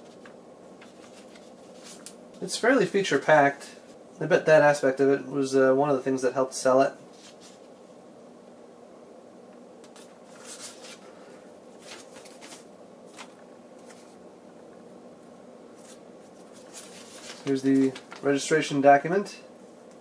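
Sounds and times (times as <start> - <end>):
paper rustling: 0.0 - 3.0, 7.1 - 7.7, 9.9 - 11.2, 11.8 - 14.2, 15.8 - 18.4
faint steady hum: 0.0 - 20.0.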